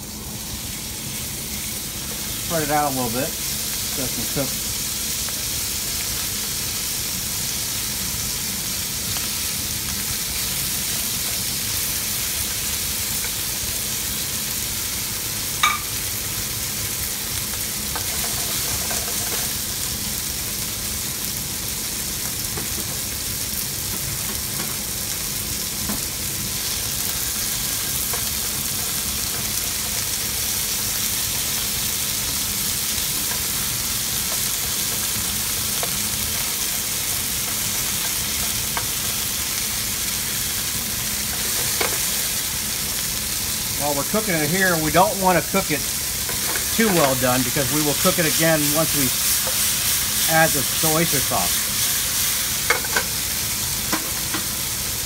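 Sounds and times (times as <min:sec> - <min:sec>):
steak sizzling in a frying pan: 0:00.0 - 0:55.0.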